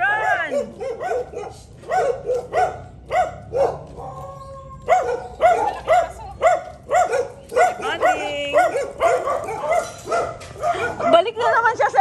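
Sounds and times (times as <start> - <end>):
small dog yapping: 0.1 - 11.2.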